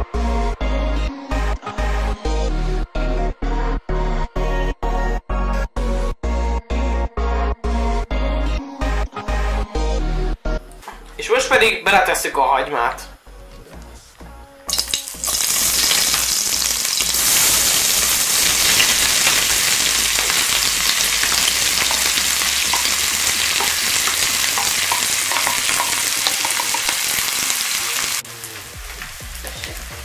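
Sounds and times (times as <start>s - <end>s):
onion sizzling in hot fat: 14.7s - 30.0s.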